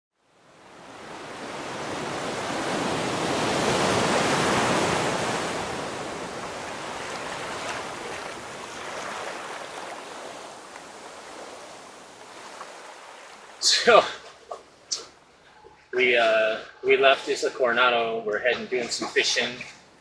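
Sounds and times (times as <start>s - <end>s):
rushing water: 0.3s - 15.4s.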